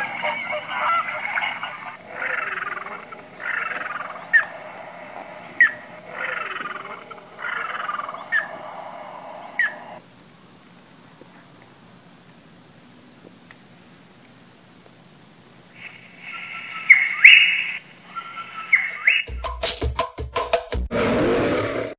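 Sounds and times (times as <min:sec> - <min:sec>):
recorded falling bird calls: 0:00.0 - 0:10.0, 0:15.7 - 0:19.3
sharp single bird calls: 0:16.4 - 0:19.3.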